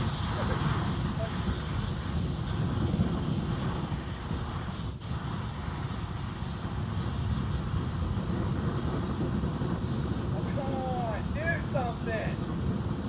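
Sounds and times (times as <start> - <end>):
bonfire burning: 0.0 - 13.0.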